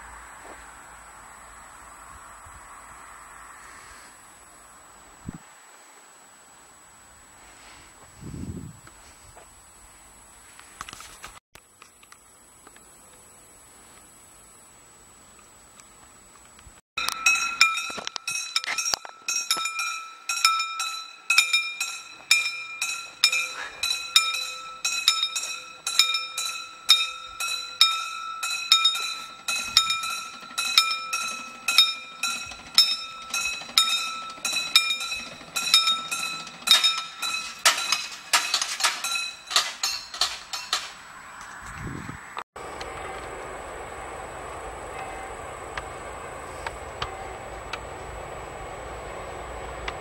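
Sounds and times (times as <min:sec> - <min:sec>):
level crossing warning bell: 0:17.0 - 0:41.0, 0:42.9 - 0:47.7.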